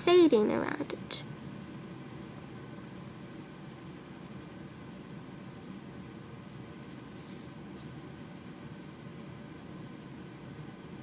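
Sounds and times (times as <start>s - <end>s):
low background hum: 0.0s - 11.0s
pencil scratching on paper: 1.5s - 5.6s, 6.4s - 11.0s.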